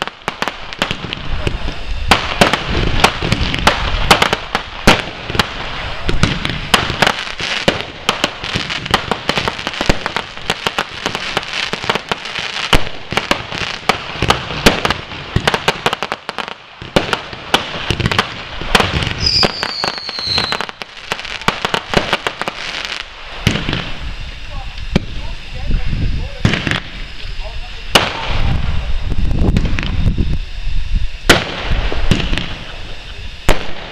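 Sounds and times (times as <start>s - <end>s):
fireworks crackling and banging: 0.0s - 33.9s
high falling whistle: 19.2s - 20.7s.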